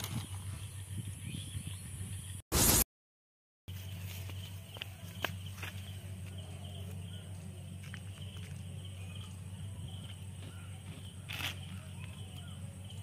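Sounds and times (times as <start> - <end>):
steady low hum: 3.7 - 13.0.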